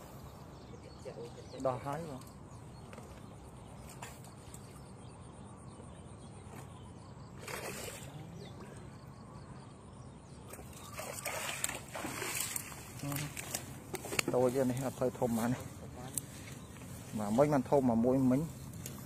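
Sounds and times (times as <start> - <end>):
hands splashing in water: 10.5 - 14.2
rustling through grass: 11.2 - 19.0.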